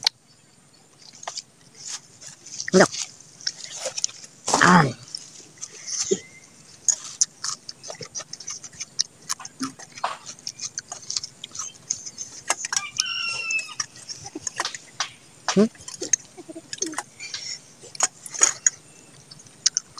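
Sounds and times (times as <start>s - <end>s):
wet chewing and lip smacks: 1.0s - 4.4s, 5.0s - 19.9s
chicken calling: 9.3s - 19.8s.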